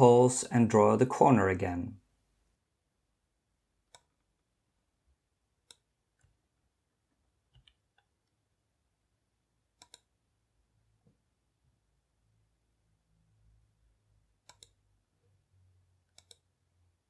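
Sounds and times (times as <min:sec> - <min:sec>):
faint mouse button clicks: 0:09.8 - 0:10.1, 0:14.4 - 0:14.8, 0:16.1 - 0:16.4.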